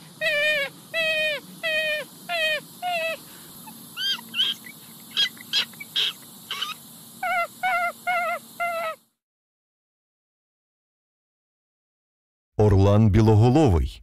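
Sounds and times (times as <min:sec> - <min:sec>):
raccoon chirping: 0:00.0 - 0:09.0
raccoon wavering cries: 0:00.0 - 0:09.0.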